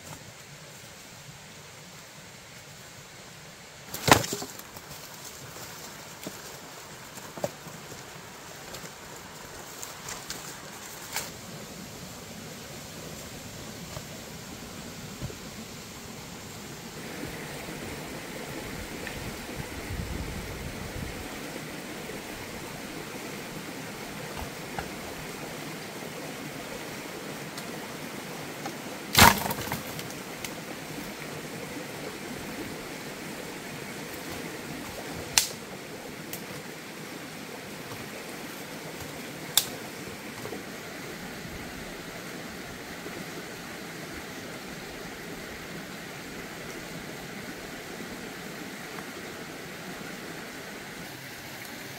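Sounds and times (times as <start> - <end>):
firewood sticks clattering: 3.9 - 6.5, 29.1 - 30.2.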